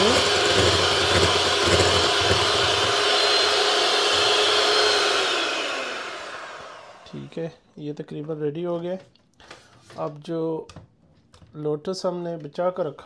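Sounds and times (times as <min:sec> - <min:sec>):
electric mixer motor whine: 0:00.0 - 0:07.3.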